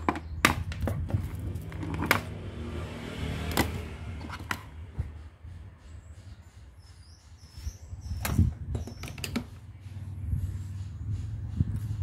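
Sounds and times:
clicks and knocks of handling: 0.0s - 2.4s, 8.2s - 9.6s
steady low hum: 9.4s - 12.0s.

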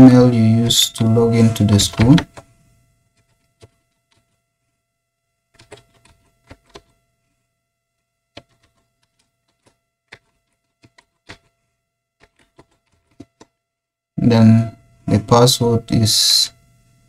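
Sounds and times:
faint steady hum: 0.0s - 17.0s
keyboard typing clicks: 5.6s - 6.9s, 8.4s - 11.5s, 12.2s - 13.5s.

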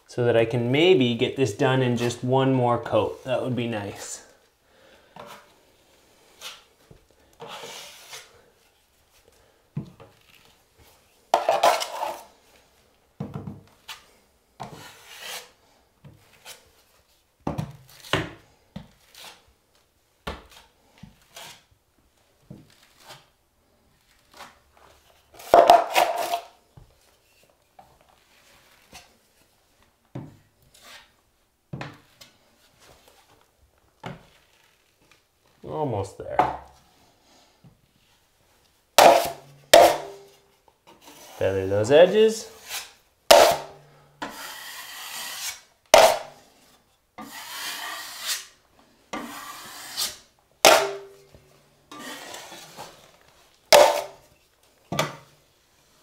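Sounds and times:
taping knife scraping compound: 5.2s - 9.3s, 11.4s - 12.4s, 13.8s - 15.6s, 16.2s - 17.2s, 18.9s - 19.5s, 20.4s - 21.7s, 22.7s - 23.4s, 24.0s - 26.5s, 30.6s - 31.2s, 39.0s - 54.4s.

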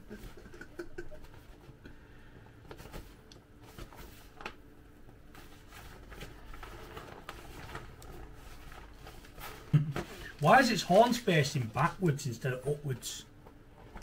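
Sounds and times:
low room hum: 0.0s - 14.0s
plastic inflatable toy rustling: 2.6s - 12.0s.

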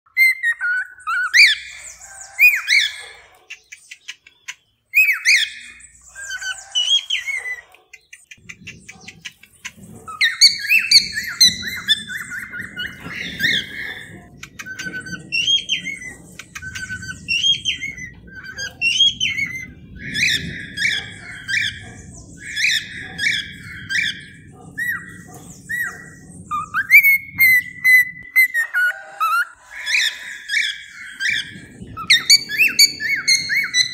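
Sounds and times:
cockatiel chirps and whistles: 0.1s - 1.7s, 5.0s - 7.6s.

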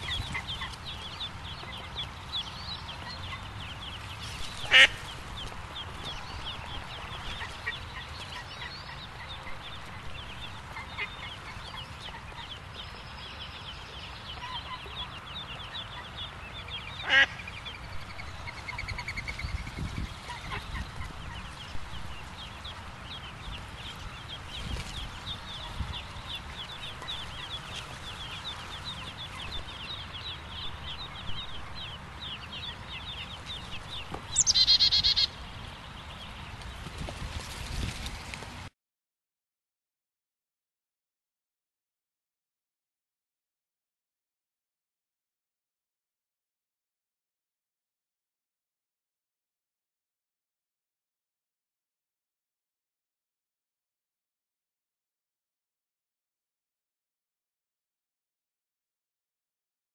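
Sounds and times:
ducklings peeping: 0.0s - 37.9s.

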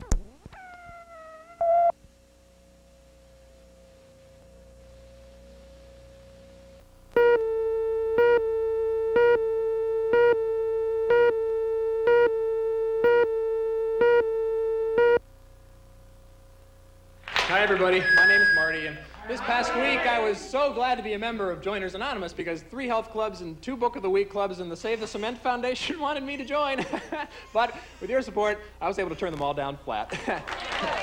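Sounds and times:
loud buzzy tone: 0.0s - 17.2s
faint steady tone: 0.7s - 15.3s.

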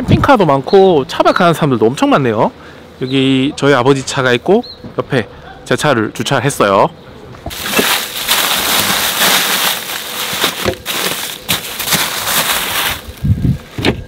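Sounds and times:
plastic bags crinkling: 7.5s - 13.4s.

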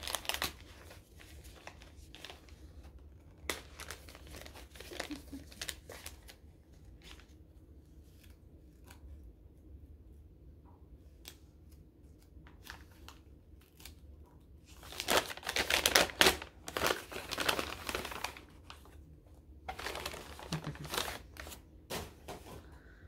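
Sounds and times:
gift wrapping crinkling and tearing: 0.0s - 9.1s, 12.1s - 19.1s, 19.7s - 21.8s.

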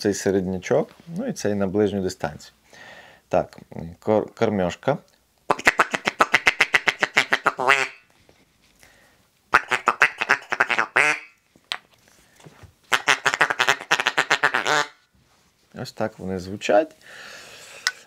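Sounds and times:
duck call feeding chuckle: 5.6s - 8.0s, 9.6s - 11.3s, 12.9s - 15.0s.

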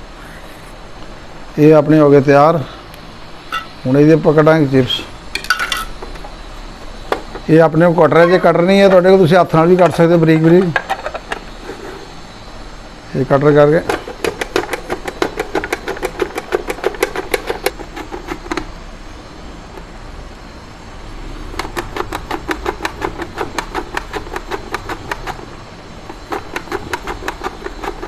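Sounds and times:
mandoline slicer clacking: 21.5s - 25.5s, 26.1s - 28.0s.

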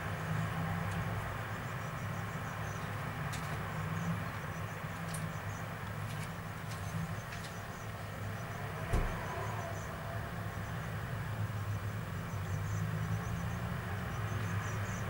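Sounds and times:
street traffic rumble: 0.0s - 15.0s
knock: 8.9s - 9.2s.

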